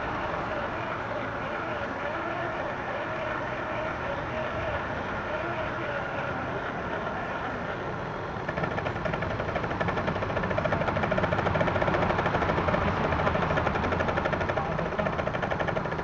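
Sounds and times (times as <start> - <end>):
toy truck motor whirring: 8.4 - 16.0.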